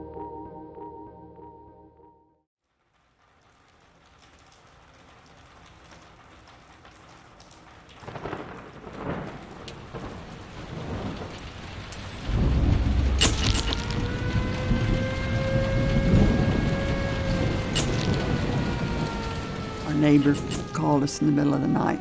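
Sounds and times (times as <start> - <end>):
heavy rain: 2.7 - 22.0
thunder rumbling: 7.8 - 22.0
thunder crack: 8.0 - 22.0.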